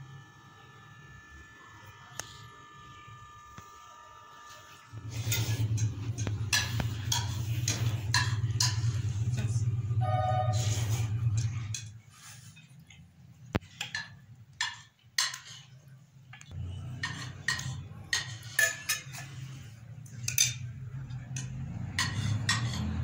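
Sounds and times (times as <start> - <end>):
low steady hum: 0.0 - 14.6
metal spoons clinking on glass: 17.0 - 19.4.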